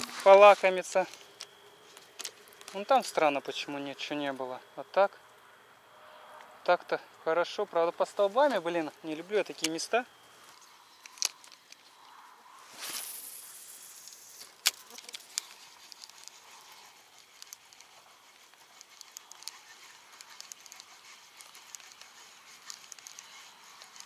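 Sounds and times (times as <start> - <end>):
fishing line running out: 10.6 - 24.0
sharp reel click: 12.8 - 24.0
reel ticking as wound in: 14.4 - 24.0.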